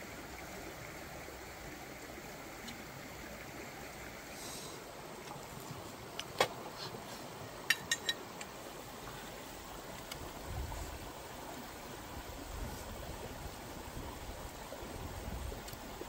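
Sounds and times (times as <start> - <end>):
shallow stream flowing: 0.0 - 16.0.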